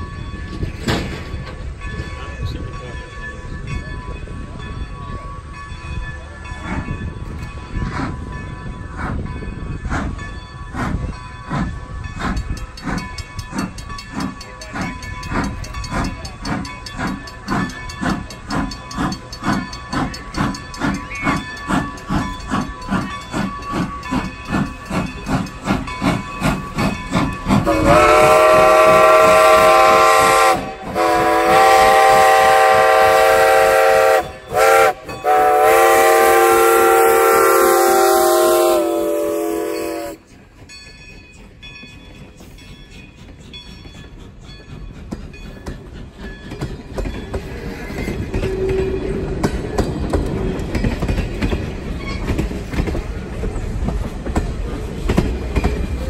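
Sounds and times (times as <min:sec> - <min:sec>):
steam locomotive exhaust chuffing: 0:00.0 - 0:56.0
steam whistle blasts: 0:27.6 - 0:40.3.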